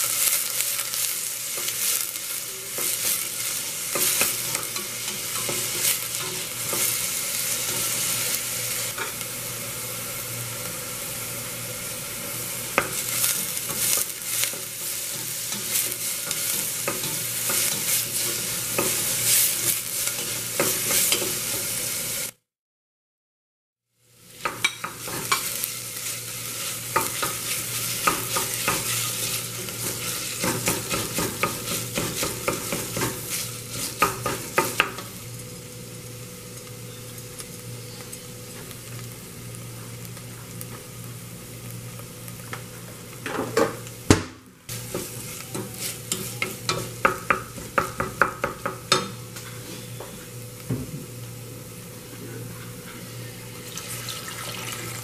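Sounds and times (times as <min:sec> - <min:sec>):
vegetables sizzling in oil: 0:00.0 - 0:22.4, 0:24.0 - 0:55.0
wooden spoon scraping a pan: 0:12.8 - 0:21.7, 0:24.5 - 0:34.9.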